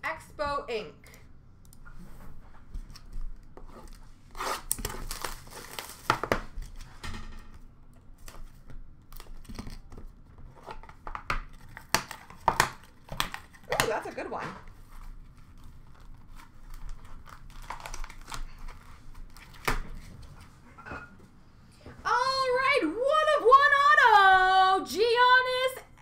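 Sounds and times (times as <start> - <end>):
plastic wrap crinkling and tearing: 3.8 - 6.9, 8.2 - 20.1.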